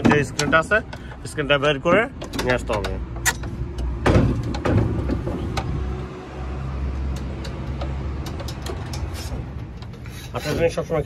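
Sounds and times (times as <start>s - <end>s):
metal parts knocking and clicking: 1.9s - 5.7s, 7.1s - 10.4s.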